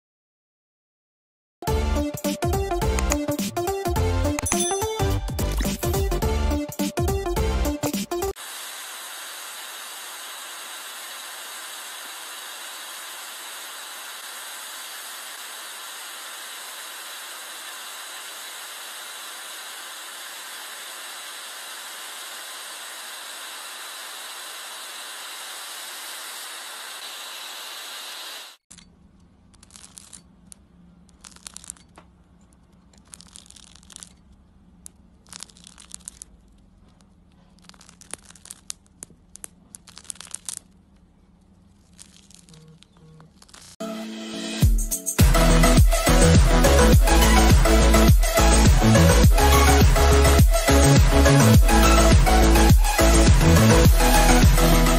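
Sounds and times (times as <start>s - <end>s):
blow torch flame hissing: 8.3s - 28.6s
irregular crackles: 28.6s - 43.8s
low steady hum: 28.7s - 43.8s.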